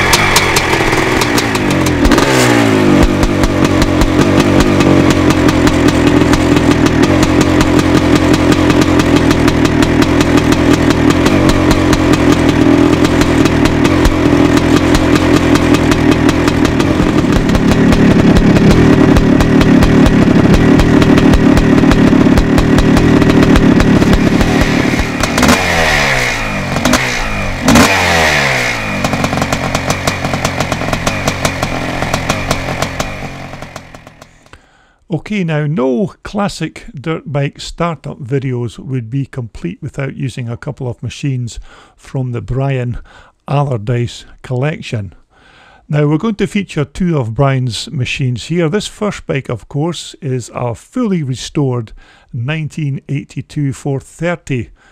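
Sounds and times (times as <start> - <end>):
motorcycle engine revving: 0.0 - 34.6.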